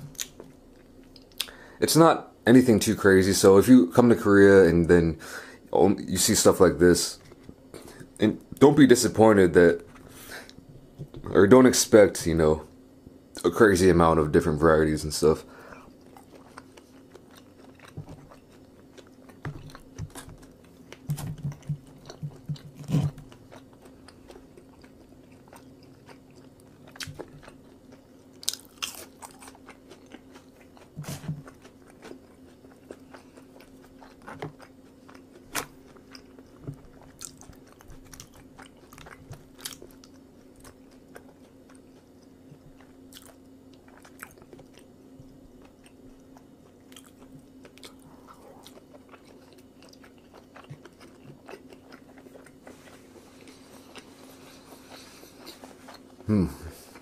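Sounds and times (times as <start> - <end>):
person chewing food: 0.0 - 1.6, 15.6 - 57.0
faint steady hum: 0.0 - 57.0.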